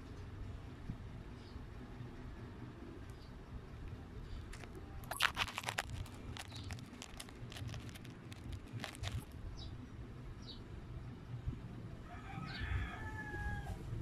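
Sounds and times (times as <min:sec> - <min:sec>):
crinkling handling noise: 0:04.5 - 0:09.3.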